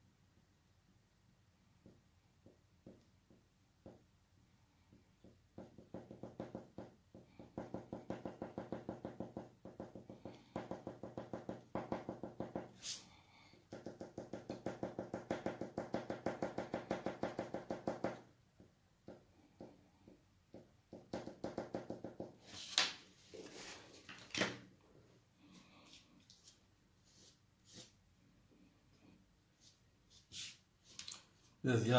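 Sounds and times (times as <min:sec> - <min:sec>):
sharp pencil scratches: 0:12.8 - 0:13.1, 0:29.6 - 0:30.7.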